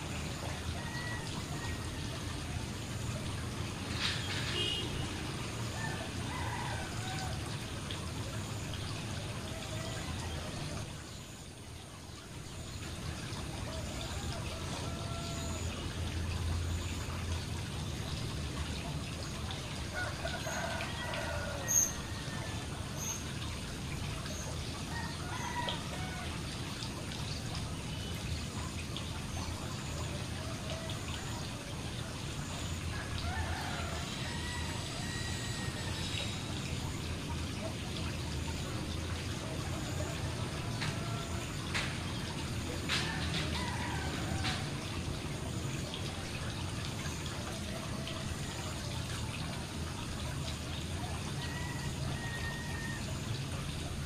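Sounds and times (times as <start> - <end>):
fountain water splashing: 0.0 - 54.0.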